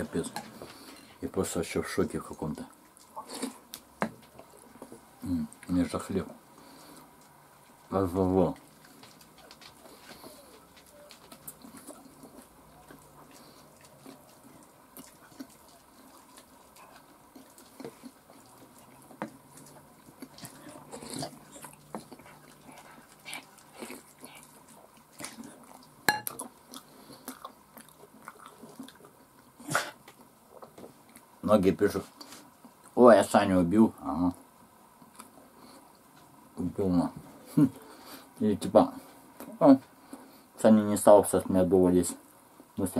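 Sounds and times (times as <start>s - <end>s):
chewing: 2.6s - 5.7s, 6.5s - 31.3s, 35.0s - 36.2s.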